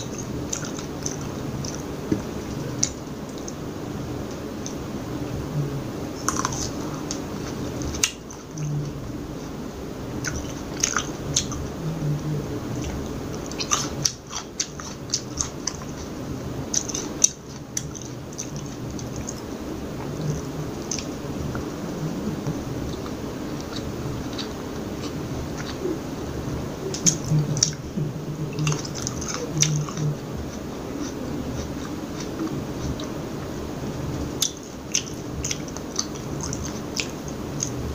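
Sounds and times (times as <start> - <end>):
chewing crunchy grape: 10.2 - 33.2, 34.3 - 37.8.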